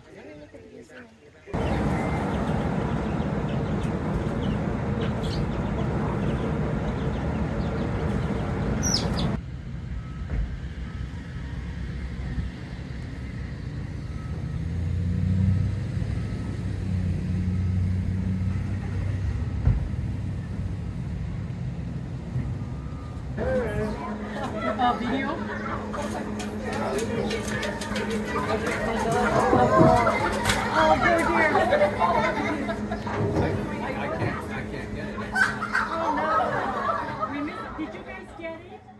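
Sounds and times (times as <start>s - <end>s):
dense steady outdoor noise: 0.0s - 38.9s
road traffic rumble: 0.9s - 38.9s
vehicle passing: 1.5s - 38.9s
high bird chirps: 1.6s - 9.4s.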